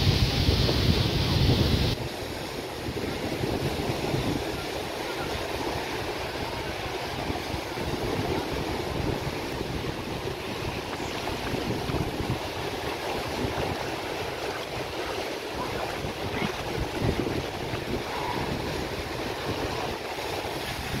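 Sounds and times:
waves washing on sand: 0.0s - 21.0s
wind buffeting microphone: 0.0s - 21.0s.

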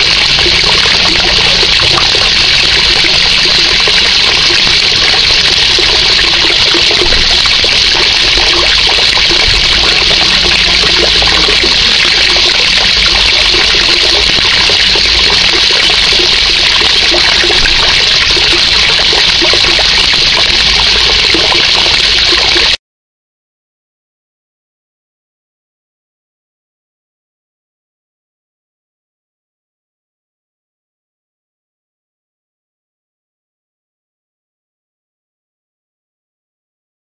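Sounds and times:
water pouring into a pool: 0.0s - 22.8s.

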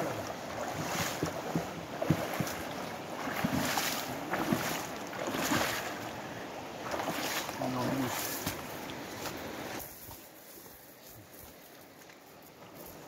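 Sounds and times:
feet wading through water: 0.0s - 13.0s
river water flowing: 0.0s - 13.0s.

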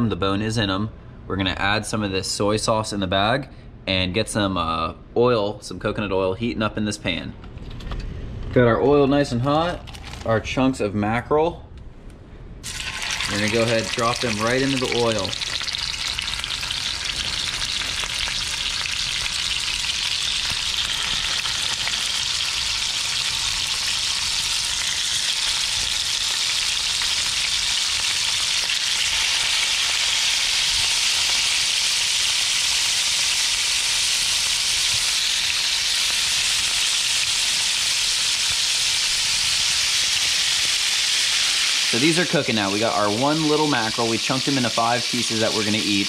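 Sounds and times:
fish sizzling in a pan: 12.6s - 46.0s.

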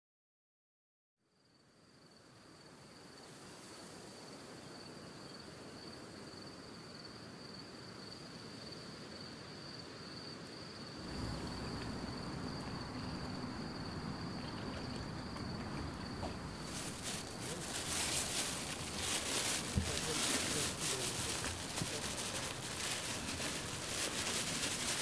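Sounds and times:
soft outdoor hiss: 1.2s - 25.0s
crickets trilling: 1.4s - 25.0s
low hum: 11.1s - 16.7s.

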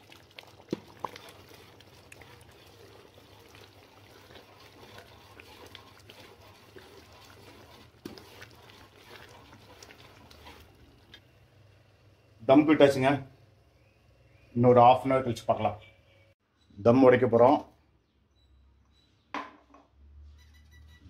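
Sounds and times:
ladle scraping steel pot: 0.0s - 11.2s
rice squelching: 0.0s - 11.4s.

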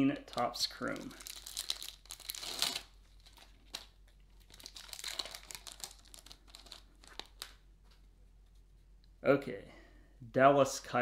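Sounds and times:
foil wrapper crinkling: 0.3s - 7.6s.

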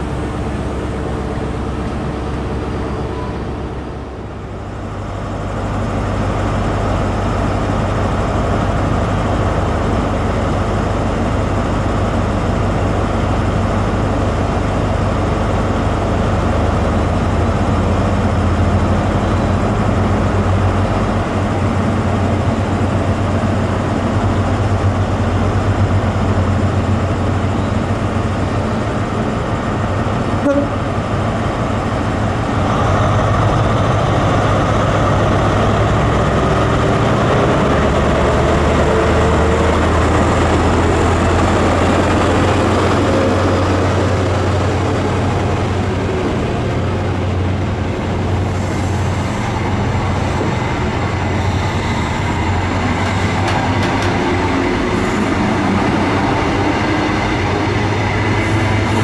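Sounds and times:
diesel train engine humming: 0.0s - 59.0s.

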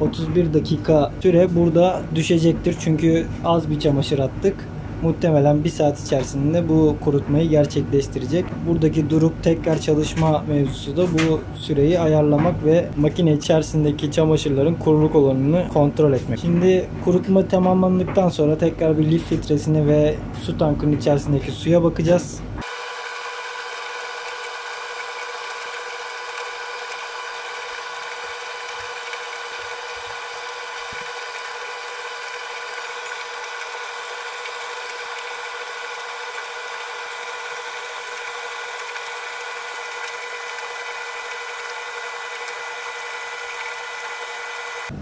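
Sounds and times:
tumble dryer humming: 22.6s - 45.0s.

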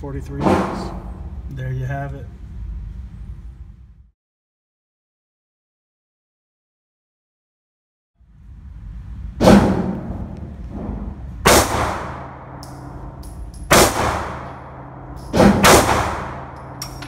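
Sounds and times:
pistol shots echoing indoors: 9.4s - 17.0s.

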